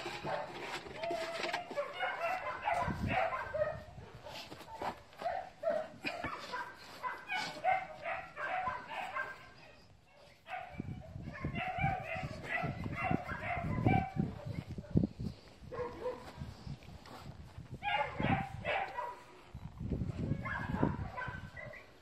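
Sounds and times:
dog yipping and barking: 1.2 - 3.9, 5.2 - 9.8, 10.5 - 14.6, 17.8 - 19.2, 20.3 - 22.0.

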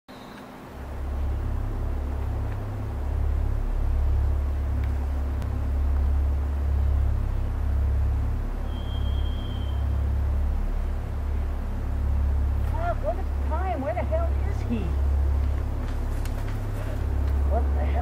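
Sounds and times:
deep rumble: 0.7 - 18.0.

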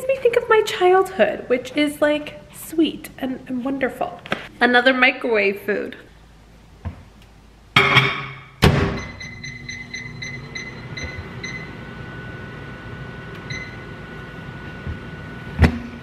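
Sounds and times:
microwave humming: 8.6 - 16.0
keypad beeps: 9.0 - 11.7, 13.5 - 13.8.

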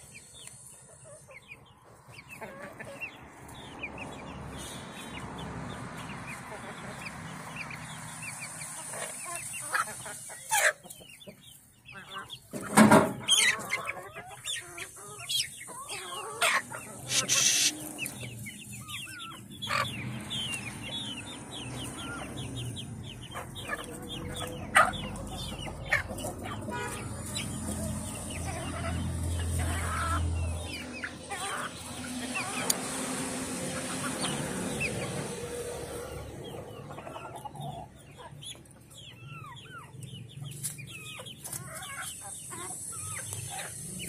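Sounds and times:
chickens clucking: 0.0 - 44.0
loud chicken calls: 6.3 - 40.0.

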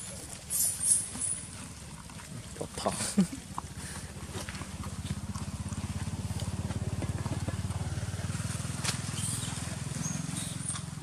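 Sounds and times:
small motorcycle engine putter: 8.4 - 11.0.

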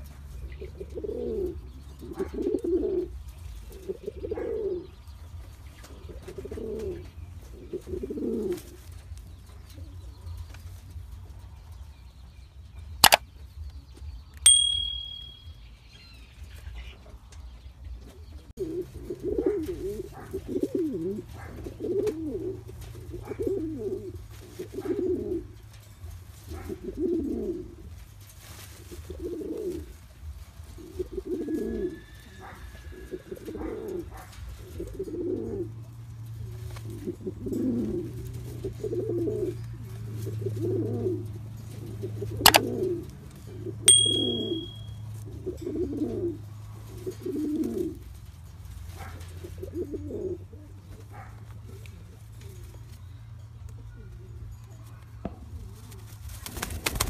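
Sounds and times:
pigeon cooing: 0.0 - 5.2, 5.8 - 10.1, 18.1 - 25.8, 26.4 - 28.1, 28.8 - 48.3, 48.9 - 52.8
sharp click: 13.0 - 13.2
short high beep: 43.9 - 44.9.

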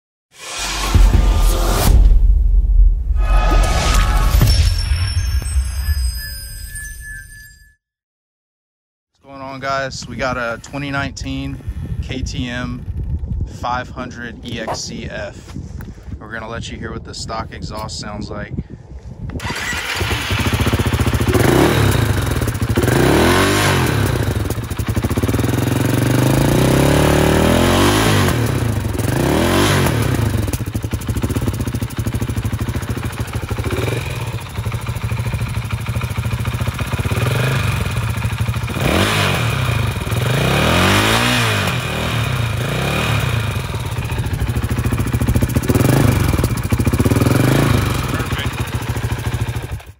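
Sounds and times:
motorcycle engine revving: 19.4 - 49.9.

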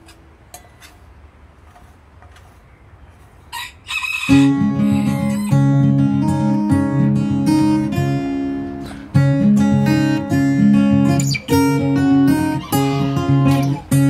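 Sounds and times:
acoustic guitar music: 4.3 - 14.0.

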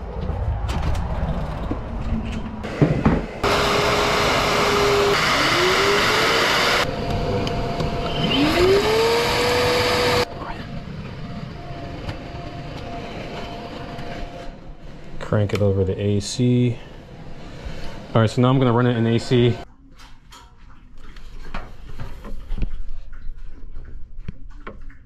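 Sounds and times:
vacuum motor running: 2.7 - 10.7.

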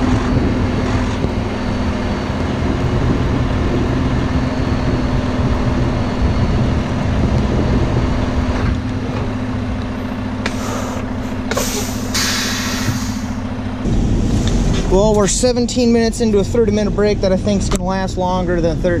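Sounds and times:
diesel truck engine idling: 0.0 - 19.0
air brake hissing: 10.4 - 13.5.

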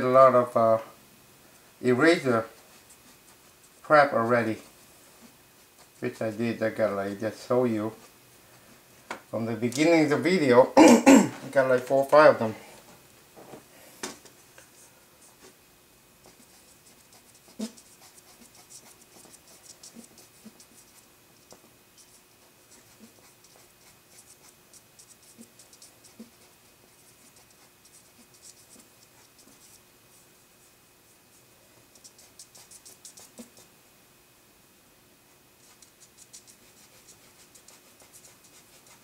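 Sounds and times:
drawing tool scratching paper: 4.5 - 6.8, 16.2 - 29.8, 31.9 - 33.7, 35.6 - 39.0.

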